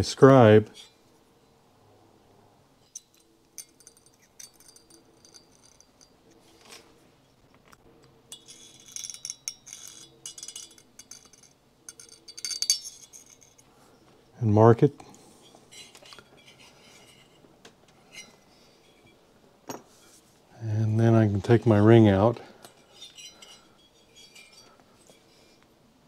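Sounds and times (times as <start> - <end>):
scribe scraping metal: 15.3 - 19.2, 22.6 - 25.6.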